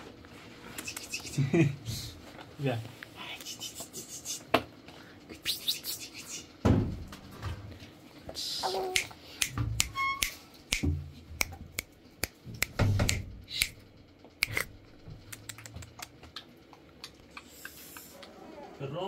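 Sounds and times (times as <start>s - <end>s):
short high squeak: 9.8s - 10.4s.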